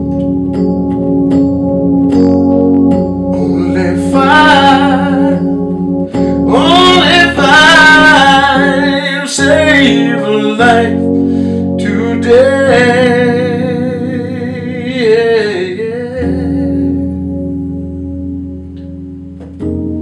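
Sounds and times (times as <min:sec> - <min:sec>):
electronic keyboard chords: 0:00.0 - 0:20.0
man singing with vibrato: 0:03.4 - 0:17.2.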